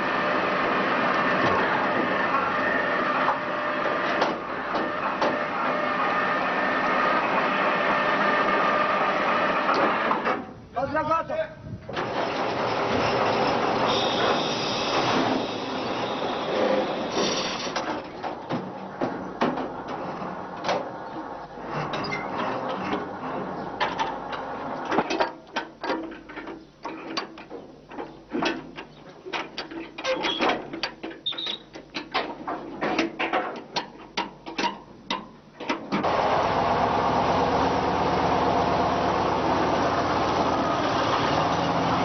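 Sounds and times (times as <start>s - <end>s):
loud steady machine noise: 0.0s - 10.3s, 36.0s - 42.0s.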